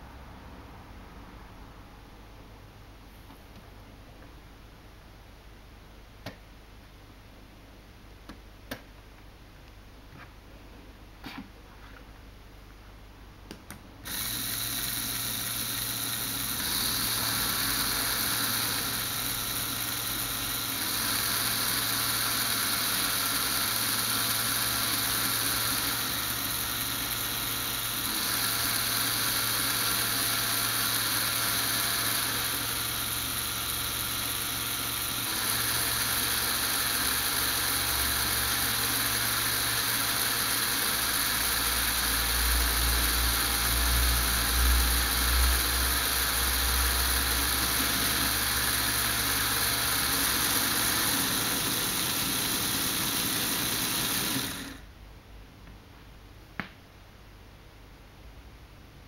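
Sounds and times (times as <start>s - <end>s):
small motors and plastic gears whirring: 14.0s - 54.8s.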